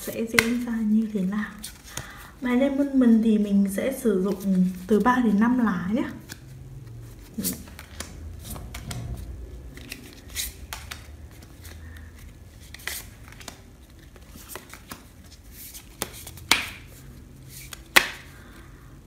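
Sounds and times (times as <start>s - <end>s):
cards flicking and snapping: 0.3s - 0.6s, 7.4s - 18.6s.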